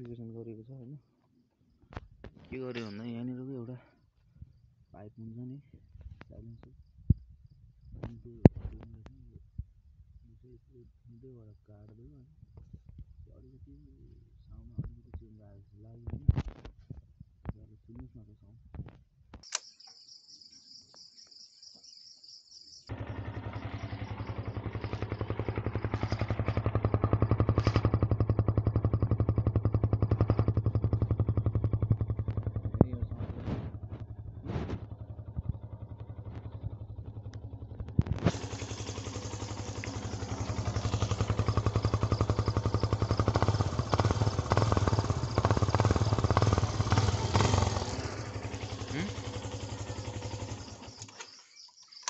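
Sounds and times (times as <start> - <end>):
motorcycle engine running: 22.9 - 52.0.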